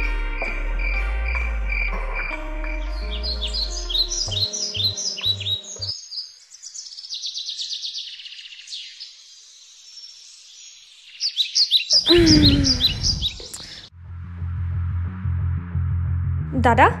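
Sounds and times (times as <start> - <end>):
music: 0.0 - 5.9, 13.9 - 17.0
birds chirping: 0.9 - 13.9.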